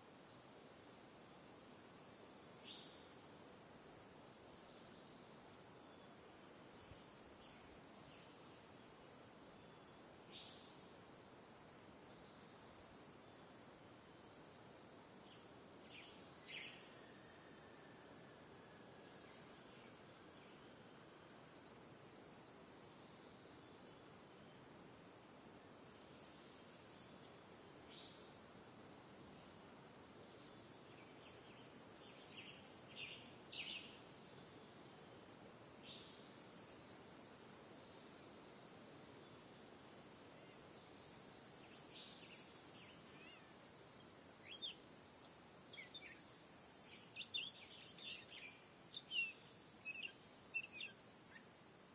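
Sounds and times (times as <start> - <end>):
soft steady hiss: 0.0 - 51.9
bird chirps: 41.6 - 51.9.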